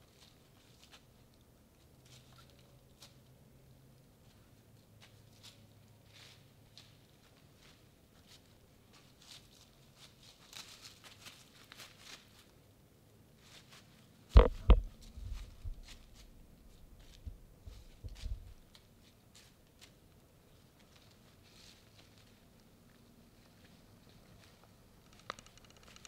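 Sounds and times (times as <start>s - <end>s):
faint rustling and ticks: 13.4s - 26.0s
sharp knocks on microphone: 14.4s - 14.9s
low rumbling and soft thumps: 14.4s - 18.6s.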